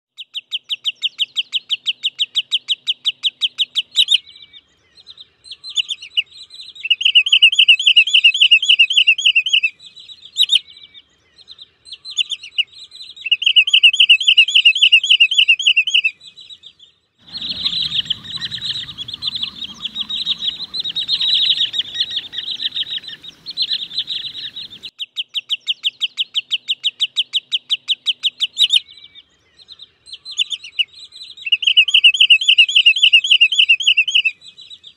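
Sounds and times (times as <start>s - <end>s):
bird calling sharp high notes: 17.2s - 24.9s
low rumbling background noise: 17.2s - 24.9s.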